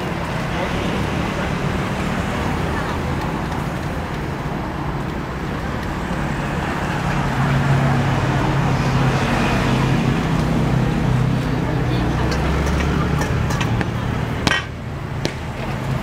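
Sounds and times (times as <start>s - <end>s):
hum of passing vehicles: 0.0s - 16.0s
vehicle engine: 0.0s - 16.0s.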